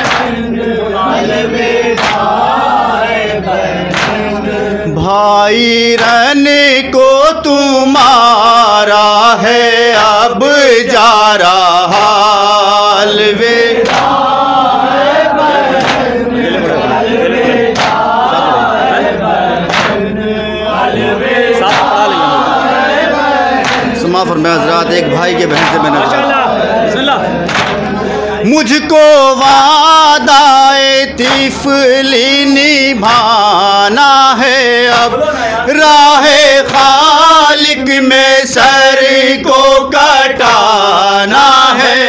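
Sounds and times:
hands slapping chests: 0.0 - 0.4, 1.9 - 2.3, 3.9 - 4.4, 13.8 - 14.3, 15.7 - 16.2, 17.7 - 18.2, 19.6 - 20.1, 21.6 - 22.0, 23.6 - 24.0, 25.5 - 26.0, 27.4 - 27.9, 31.2 - 31.6
men chanting in chorus: 0.0 - 42.0.

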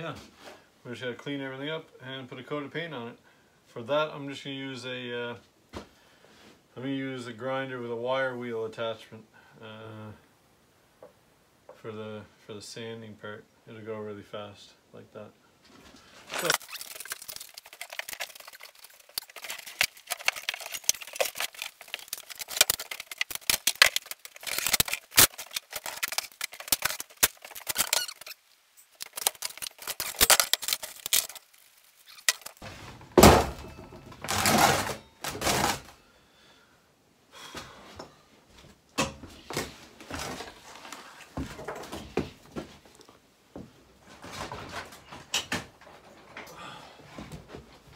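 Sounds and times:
metal tools clinking: 16.3 - 31.4.

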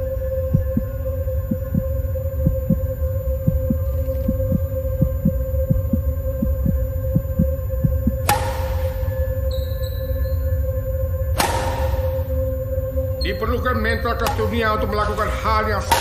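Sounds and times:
heartbeat thumps: 0.0 - 9.3
low drone with held tone: 0.0 - 16.0.

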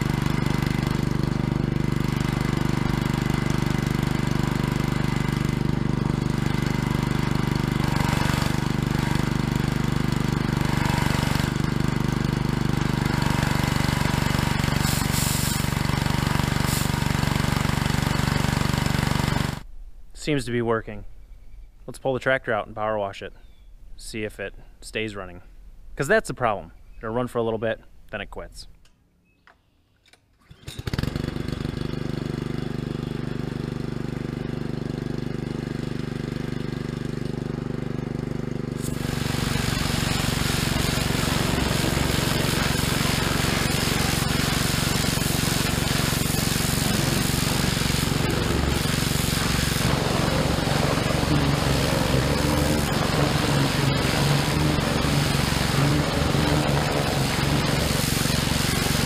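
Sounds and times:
small engine running steadily: 0.0 - 19.6, 30.5 - 59.0
water spraying hiss: 13.6 - 17.5, 38.8 - 59.0.

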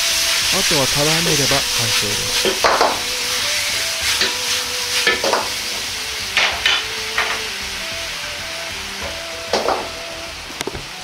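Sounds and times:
meat sizzling in a wok: 0.0 - 11.0
metal ladle scraping a wok: 1.5 - 7.6.

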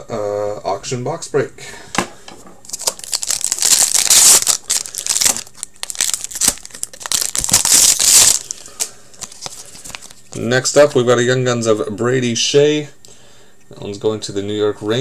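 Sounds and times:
card pack wrappers tearing and crinkling: 2.7 - 10.4
cards being handled: 2.7 - 10.5.

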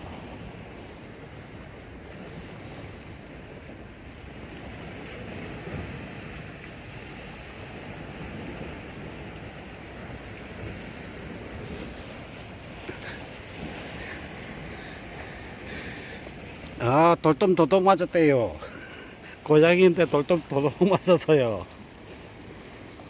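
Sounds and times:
wind buffeting microphone: 0.0 - 16.8
sea surf: 0.0 - 23.0.

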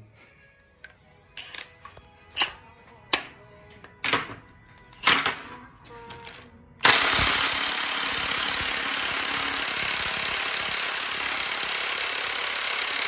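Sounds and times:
impact wrench hammering on bolt: 6.8 - 13.0.

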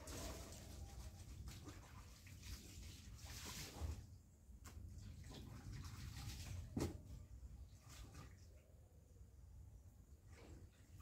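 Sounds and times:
water sloshing in basin: 0.0 - 8.8.

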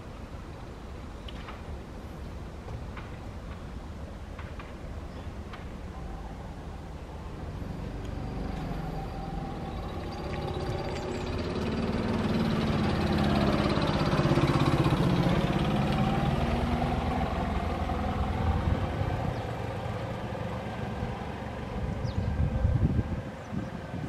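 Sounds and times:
vehicle passing by: 7.3 - 24.0.

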